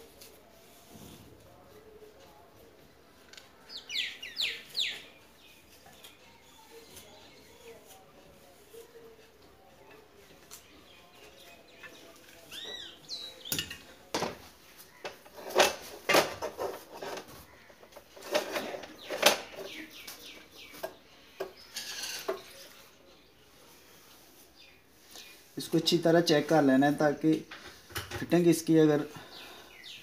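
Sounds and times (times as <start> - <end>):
knocks and metallic clatter: 15.0 - 19.8.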